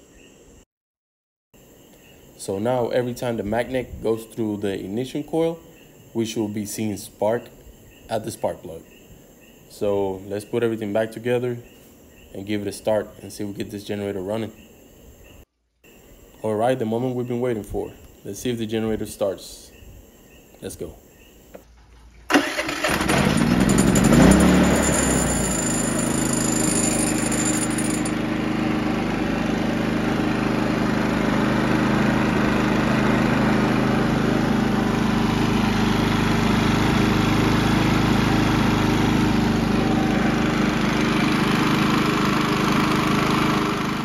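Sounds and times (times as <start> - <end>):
generator engine starting and running: 21.8 - 44.0.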